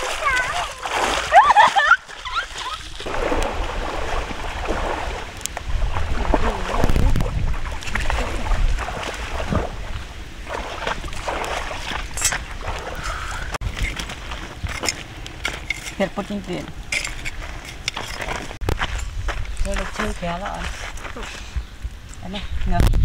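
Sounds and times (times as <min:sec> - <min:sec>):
wind buffeting microphone: 0:02.7 - 0:23.0.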